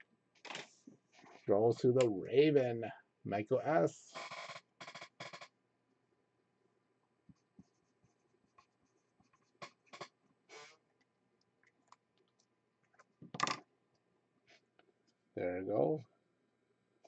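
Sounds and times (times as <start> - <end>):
marker scratching on card: 7.3 - 10.7.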